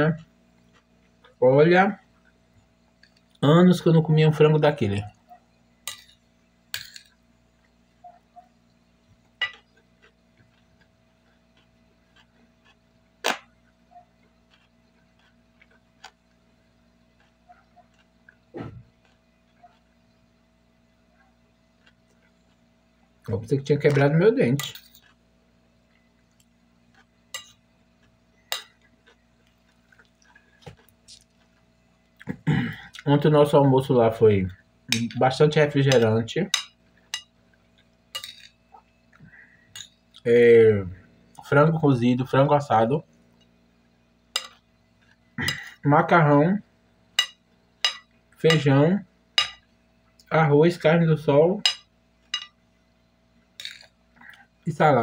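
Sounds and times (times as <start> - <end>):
faint steady hum: 0.0 - 55.0
person chewing food: 0.6 - 1.4, 7.6 - 20.3, 21.0 - 23.3, 24.7 - 33.0
fork clinking on ceramic plate: 24.6 - 25.0, 38.1 - 38.6, 44.4 - 44.6, 47.2 - 48.7, 49.4 - 49.6, 51.7 - 52.6.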